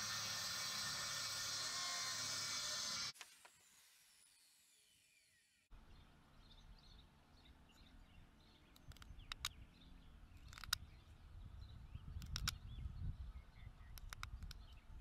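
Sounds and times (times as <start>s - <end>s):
circular saw blade spinning down: 0.0s - 5.0s
low wind rumble: 7.9s - 15.0s.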